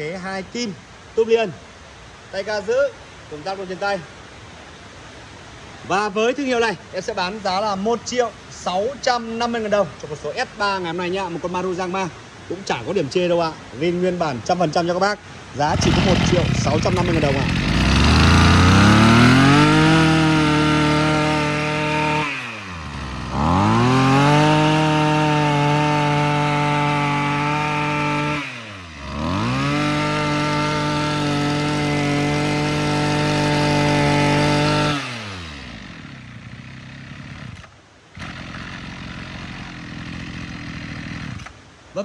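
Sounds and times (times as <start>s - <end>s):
brush cutter engine revving: 15.5s - 41.6s.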